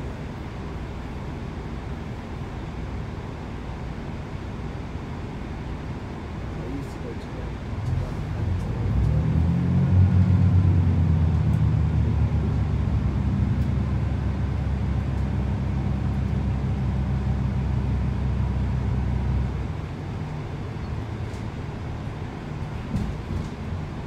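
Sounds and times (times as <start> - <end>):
train diesel engine drone: 0.0 - 24.0.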